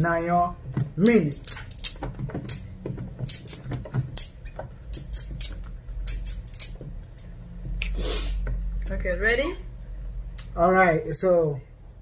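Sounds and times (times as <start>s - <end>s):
banana stems snapping: 1.0s - 2.6s.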